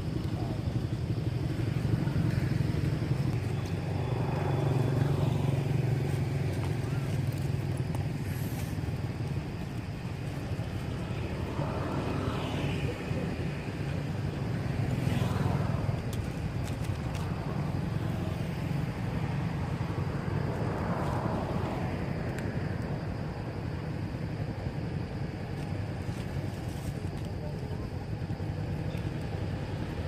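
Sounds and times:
vehicles passing on road: 0:00.0 - 0:30.0.

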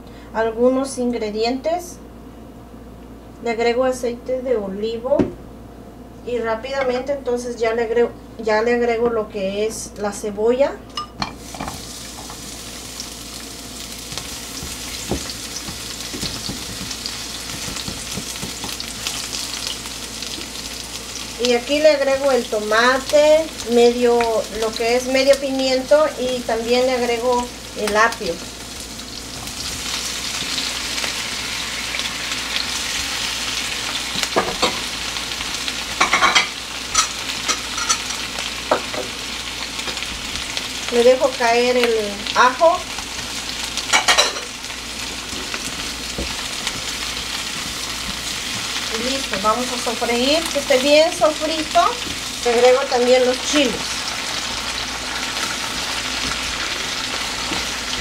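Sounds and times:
onions sizzling in oil: 0:11.2 - 0:58.0
spatula knocking in pan: 0:14.2 - 0:18.8.

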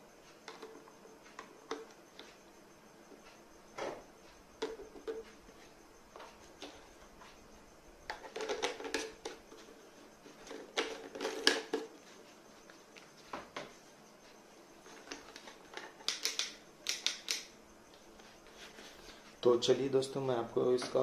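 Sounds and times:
plastic clicks and rattles: 0:08.1 - 0:09.4, 0:15.0 - 0:17.5.

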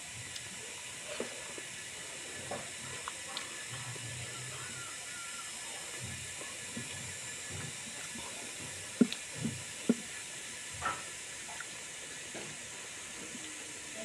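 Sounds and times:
steady hiss: 0:00.0 - 0:14.0
wet chewing smacks and clicks: 0:02.5 - 0:04.0, 0:07.5 - 0:10.2.

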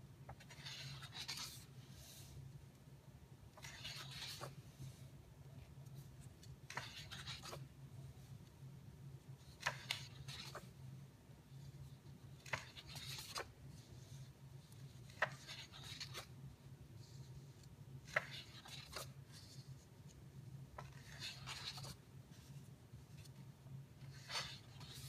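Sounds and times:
book pages turning: 0:00.3 - 0:02.2, 0:03.6 - 0:04.6, 0:05.9 - 0:07.7, 0:09.4 - 0:10.8, 0:12.2 - 0:16.4, 0:17.0 - 0:20.2, 0:20.8 - 0:25.0.

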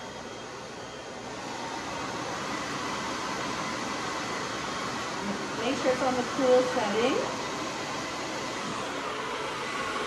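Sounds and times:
hair dryer running: 0:00.0 - 0:10.0.

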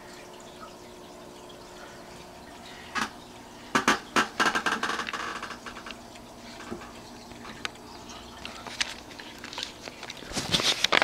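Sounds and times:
clicks and rustling: 0:08.4 - 0:11.0.

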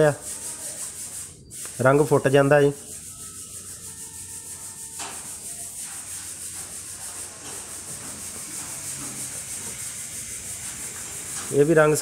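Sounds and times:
spray gun hissing: 0:03.8 - 0:12.0.

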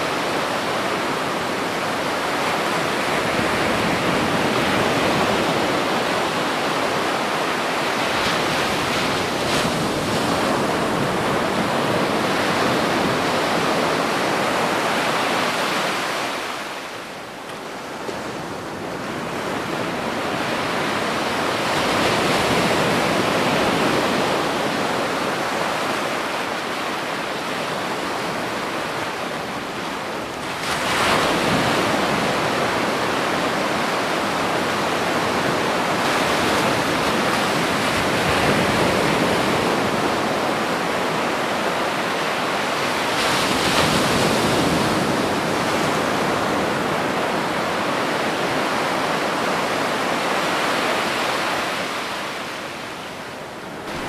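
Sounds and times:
ocean waves rushing: 0:00.0 - 0:54.0.

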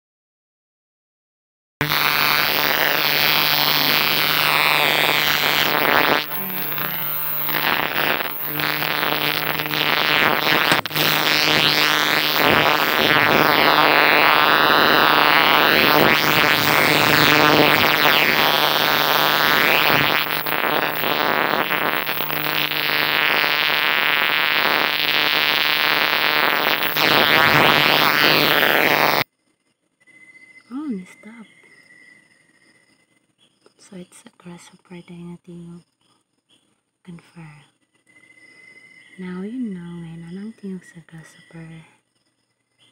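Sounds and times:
katydid buzzing: 0:01.8 - 0:29.2.

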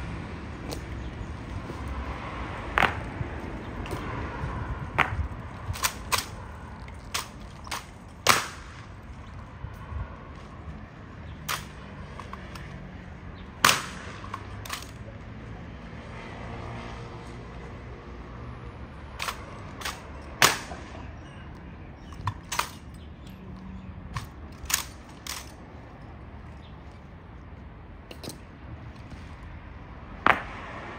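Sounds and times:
boots stamping: 0:00.6 - 0:04.1
rifles clacking: 0:05.0 - 0:09.0, 0:11.4 - 0:12.8, 0:13.6 - 0:15.1, 0:19.2 - 0:20.8, 0:22.0 - 0:26.1.

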